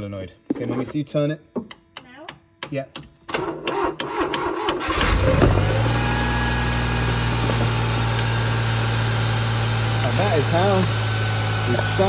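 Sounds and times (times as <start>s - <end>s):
starter solenoid clicks: 2.9s - 5.6s
car engine idling: 4.8s - 12.0s.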